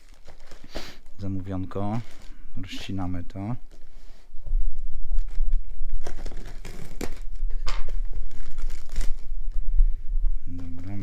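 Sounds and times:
plastic bag crinkling: 0:00.0 - 0:03.9, 0:05.1 - 0:09.7.

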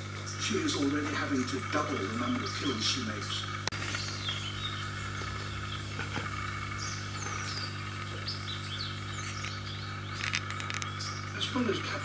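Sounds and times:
low hum: 0:00.0 - 0:12.0
steady background drone: 0:00.0 - 0:12.0
birds chirping and whistling: 0:03.8 - 0:12.0.

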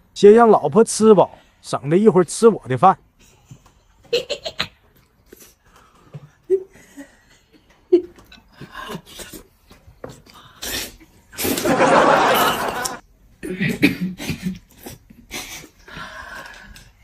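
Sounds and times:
burst of laughter: 0:11.4 - 0:13.0.

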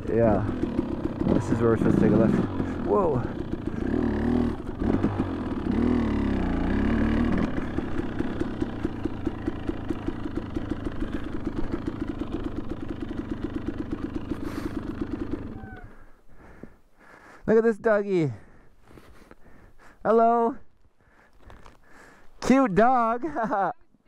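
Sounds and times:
two-stroke motorcycle engine revving: 0:00.0 - 0:16.0.

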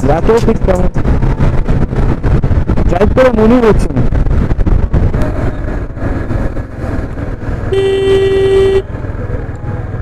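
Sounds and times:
motorcycle road and wind rumble: 0:00.0 - 0:10.0
vehicle horn: 0:07.7 - 0:09.0.

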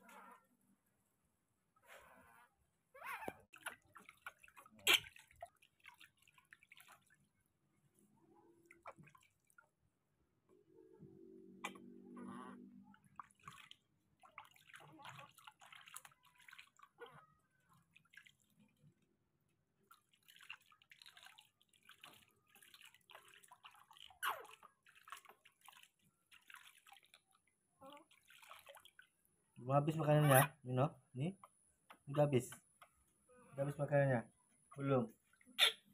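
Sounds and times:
water splashing in a plastic basin: 0:03.4 - 0:07.4, 0:08.6 - 0:09.8, 0:12.8 - 0:19.1, 0:19.8 - 0:29.3.

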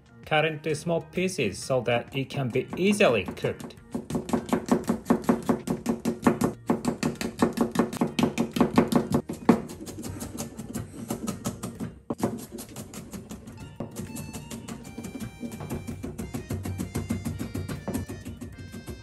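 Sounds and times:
knife chopping on cutting board: 0:02.4 - 0:19.0.

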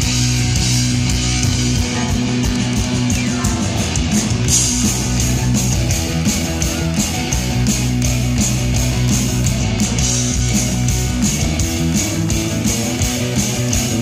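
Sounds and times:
electric guitars: 0:00.0 - 0:14.0
live rock band playing: 0:00.0 - 0:14.0
steady drum beat: 0:00.0 - 0:14.0.

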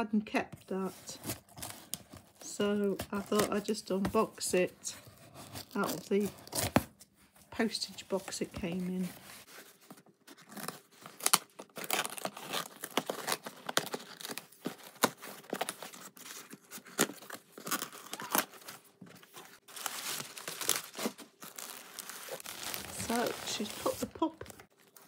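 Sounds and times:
tape and cardboard ripping: 0:10.4 - 0:18.8
plastic bag crinkling: 0:19.3 - 0:25.0.

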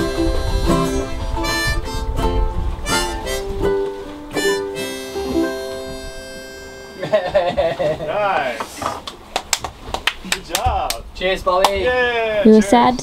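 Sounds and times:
plucked-string chords: 0:00.0 - 0:07.1
reedy harmonica-like melody: 0:00.0 - 0:07.4.

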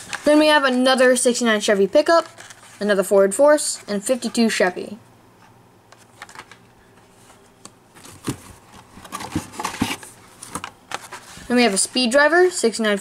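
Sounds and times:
plastic packs clicking and rustling: 0:08.0 - 0:11.3.

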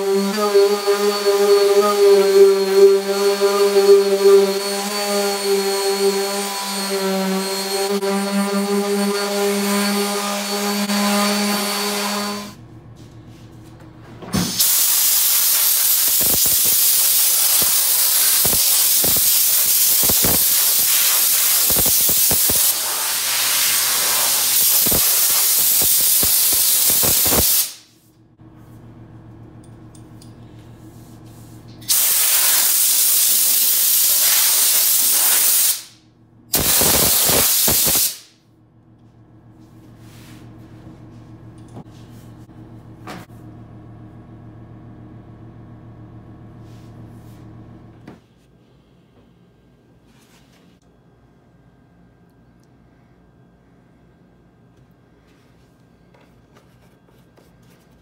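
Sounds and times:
orbital sander humming: 0:00.0 - 0:12.5
compressed air blow gun hissing: 0:14.7 - 0:27.9, 0:36.6 - 0:38.3.

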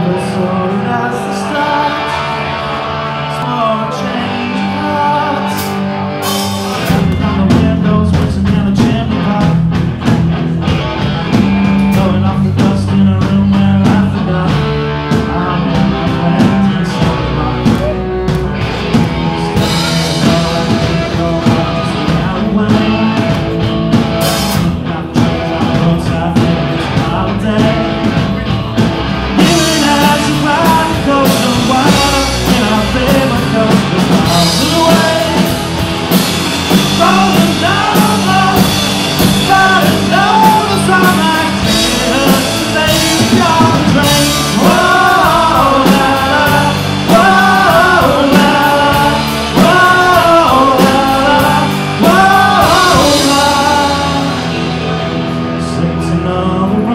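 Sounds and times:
bass guitar: 0:00.0 - 0:56.9
drum kit: 0:00.0 - 0:56.9
electric guitars: 0:00.0 - 0:56.9
person singing: 0:00.0 - 0:56.9.

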